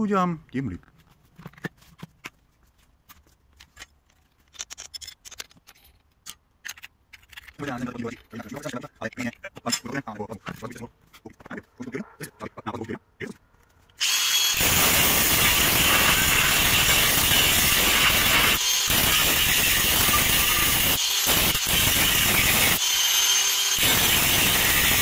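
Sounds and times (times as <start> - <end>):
angle grinder cutting steel: 14.0 - 25.0.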